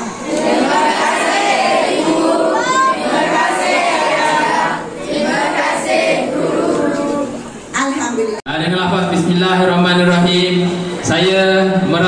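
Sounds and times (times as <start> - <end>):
children singing in unison: 0.0 - 7.4.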